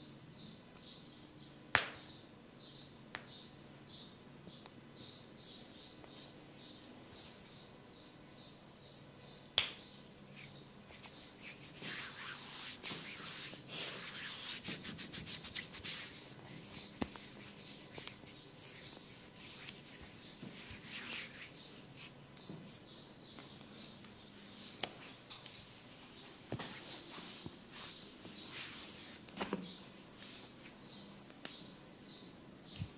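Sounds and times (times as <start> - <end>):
hands rubbing through hair: 10.3 - 22.8, 24.5 - 30.8.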